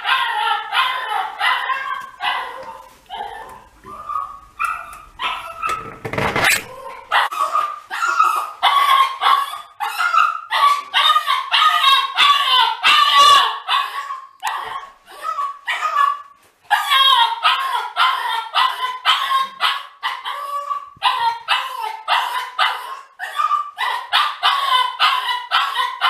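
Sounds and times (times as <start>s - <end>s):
dog crying and yelping: 0.0s - 26.0s.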